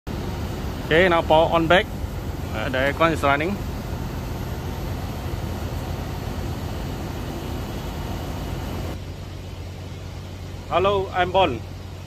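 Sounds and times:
fan air rushing: 0.1 - 12.0
low hum: 0.1 - 12.0.

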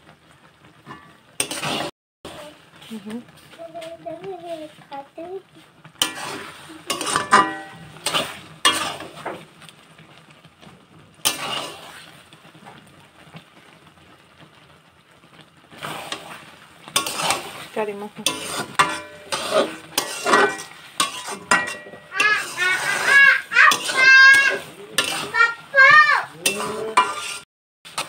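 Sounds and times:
food sizzling: 0.0 - 28.0
spatula scraping metal pan: 0.9 - 1.9, 5.9 - 9.5, 11.2 - 12.2, 15.7 - 28.0.

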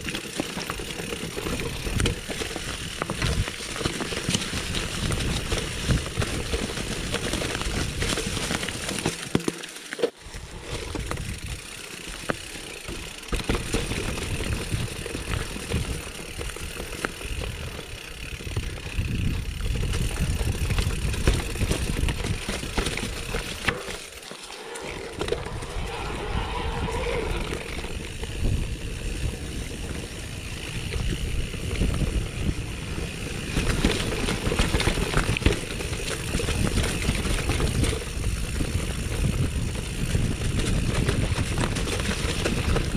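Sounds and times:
bike rattling and clicking: 0.0 - 42.9
bike tyres rumbling over dirt: 0.0 - 42.9.

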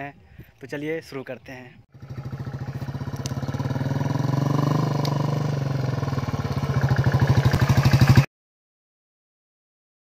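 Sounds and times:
motorcycle engine thumping: 2.0 - 8.2.

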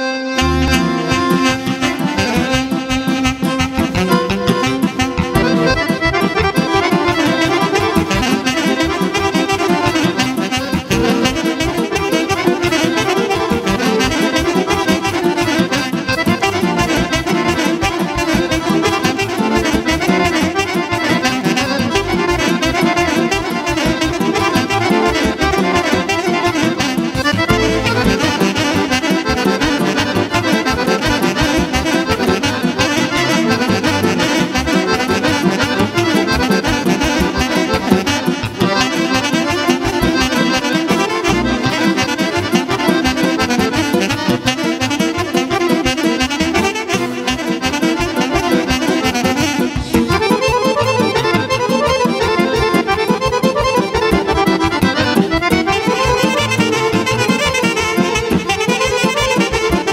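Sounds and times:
accordion: 0.0 - 59.9
keyboard: 0.0 - 59.9
drum kit beat: 27.4 - 29.0.

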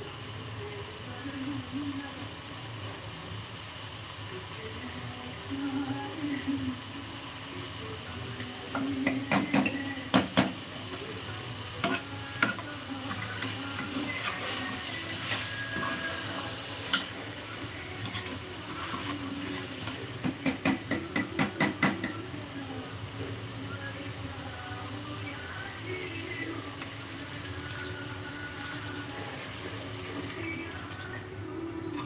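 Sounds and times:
faint sizzling: 0.0 - 32.0
ladle scraping in a pot: 18.0 - 20.0.

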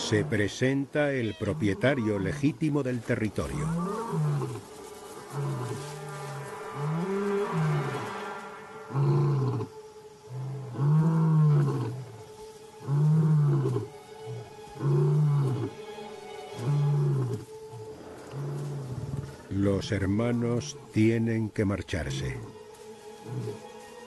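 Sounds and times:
lion roaring: 8.9 - 12.1, 12.8 - 15.8, 16.6 - 17.5.

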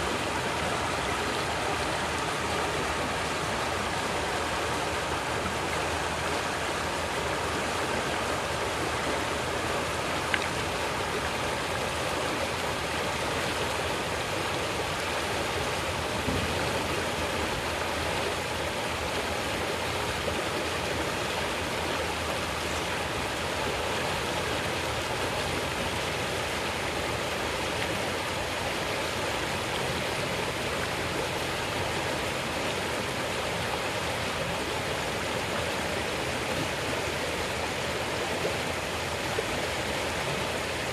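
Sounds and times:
river rushing over stones: 0.0 - 40.9.

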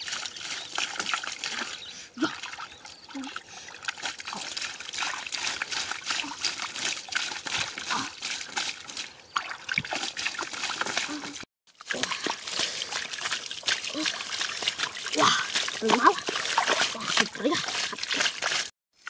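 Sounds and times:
hands splashing in muddy water: 0.0 - 18.7
small fish stirring in water: 3.9 - 18.7.

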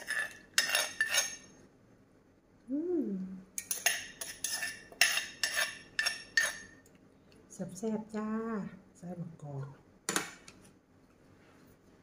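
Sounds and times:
metal spoon clinking on pot: 0.0 - 1.5, 3.6 - 6.8.

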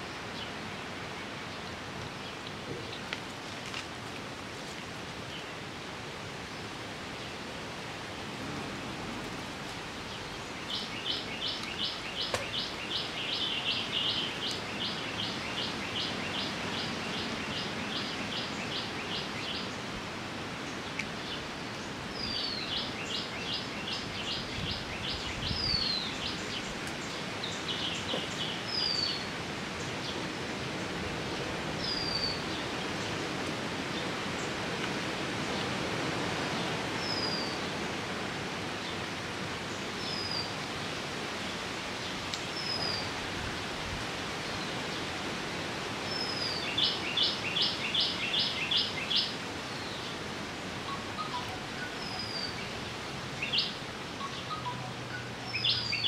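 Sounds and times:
steady outdoor hiss: 0.0 - 56.0
bird calling: 50.8 - 52.8.

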